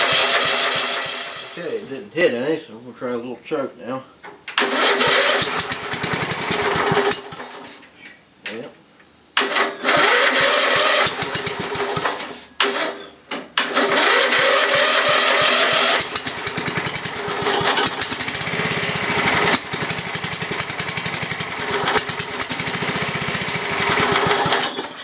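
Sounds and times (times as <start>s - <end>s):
engine running unevenly: 0.0s - 1.7s, 13.8s - 24.9s
electric starter cranking engine: 0.0s - 1.8s, 4.6s - 7.8s, 9.4s - 25.0s.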